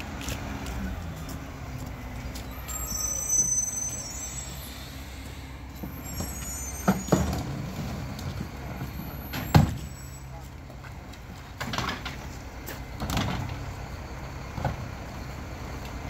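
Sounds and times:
brake squeal: 0:00.0 - 0:16.0
diesel truck idling: 0:00.0 - 0:16.0
trash bangs: 0:05.7 - 0:10.1, 0:10.9 - 0:13.8.

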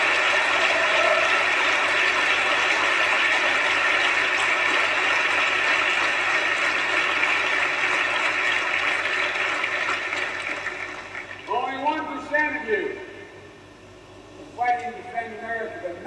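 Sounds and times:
crowd applauding: 0:00.0 - 0:11.6.

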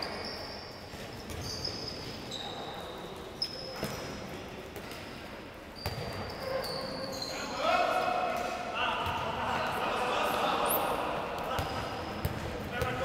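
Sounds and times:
sneakers squeaking on court: 0:00.0 - 0:05.1, 0:05.7 - 0:07.6.

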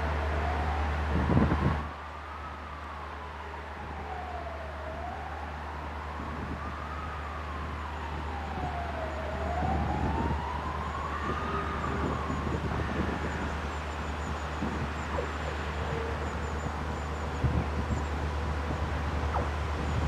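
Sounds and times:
siren wailing: 0:00.0 - 0:20.0
diesel train rumble: 0:05.4 - 0:20.0.

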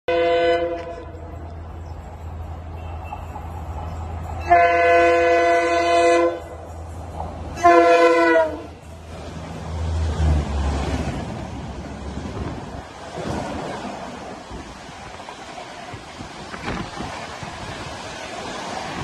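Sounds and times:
locomotive air horn: 0:00.1 - 0:01.4, 0:04.4 - 0:06.6, 0:07.6 - 0:08.8
locomotive engine drone: 0:00.1 - 0:19.0
train rushing past: 0:00.1 - 0:19.0.

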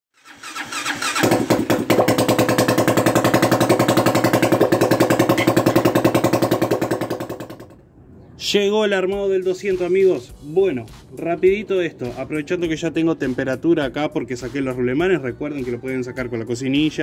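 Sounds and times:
motorcycle engine idling: 0:00.5 - 0:07.8.

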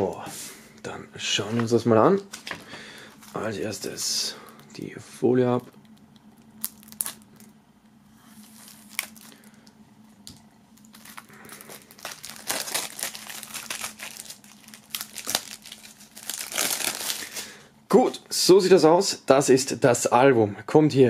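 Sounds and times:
plastic wrap crinkling: 0:06.6 - 0:07.6, 0:08.3 - 0:17.6.

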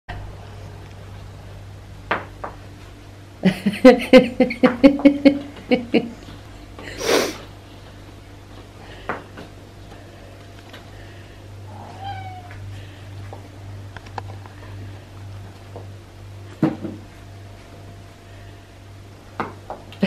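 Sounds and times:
breathy huff: 0:06.8 - 0:07.5.

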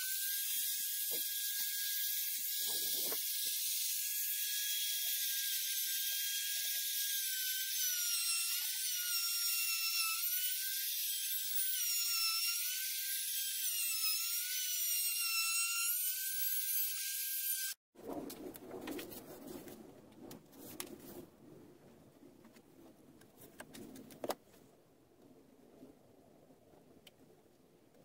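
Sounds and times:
wood router whining: 0:00.0 - 0:17.8.

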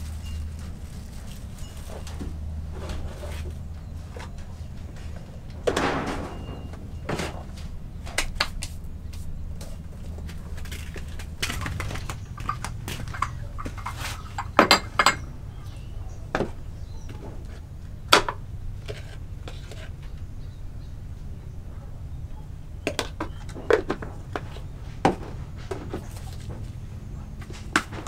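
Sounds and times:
dishes and glass clinking: 0:11.5 - 0:15.7.

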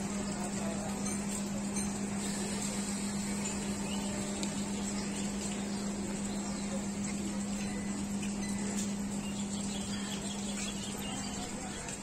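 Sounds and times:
train electrical hum: 0:00.0 - 0:12.0.

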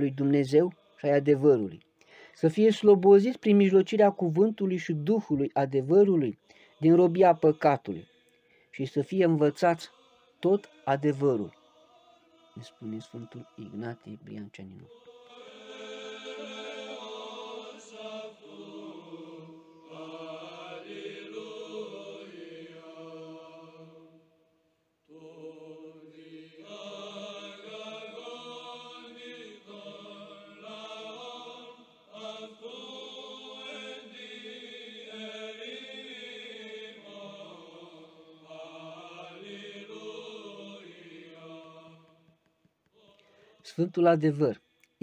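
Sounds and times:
person chanting a melody: 0:12.4 - 0:22.9.

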